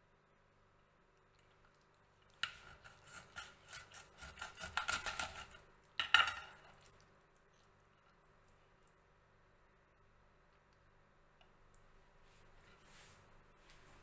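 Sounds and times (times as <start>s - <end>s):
knife crunching through bones: 2.4s - 5.6s.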